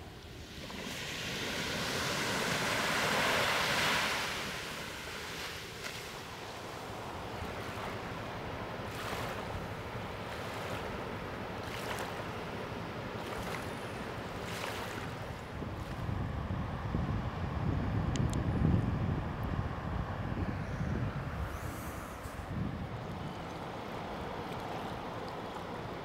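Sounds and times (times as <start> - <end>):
waves breaking on beach: 0.0 - 16.3
wind: 0.0 - 26.0.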